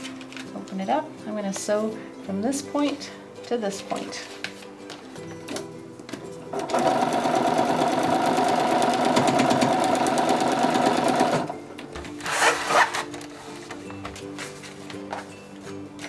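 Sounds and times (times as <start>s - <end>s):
paper rustling: 3.8s - 5.2s, 12.1s - 15.6s
sewing machine running: 6.5s - 11.5s.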